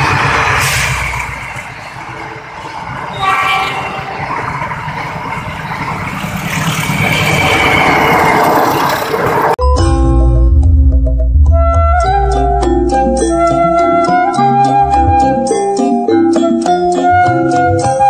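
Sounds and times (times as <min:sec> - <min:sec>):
train rushing over rails: 0:00.0 - 0:09.6
short high tone: 0:03.1 - 0:04.6.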